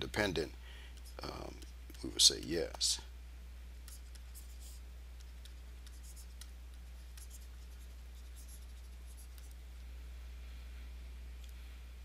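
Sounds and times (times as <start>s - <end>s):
low electrical hum: 0.0s - 12.0s
stylus scratching on tablet: 3.8s - 9.6s.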